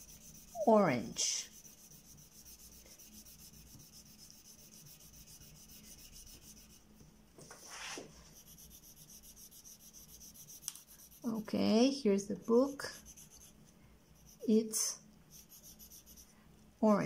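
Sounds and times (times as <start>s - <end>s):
pencil shading on paper: 0.0s - 7.0s, 8.2s - 11.5s, 12.3s - 13.6s, 15.3s - 16.3s.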